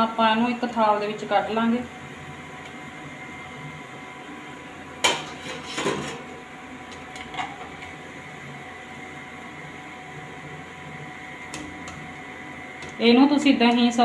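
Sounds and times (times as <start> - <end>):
metal kitchenware clattering: 5.0 - 6.2.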